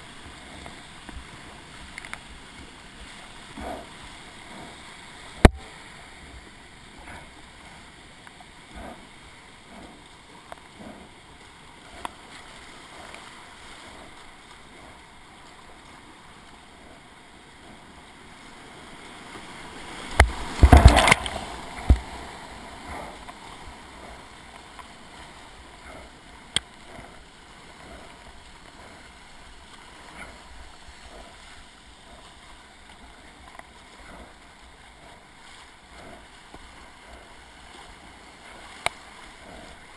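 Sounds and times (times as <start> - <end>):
water crashing and splashing: 0.0 - 39.9
whitewater rushing: 0.0 - 39.9
paddle knocks and splashes: 20.1 - 22.3.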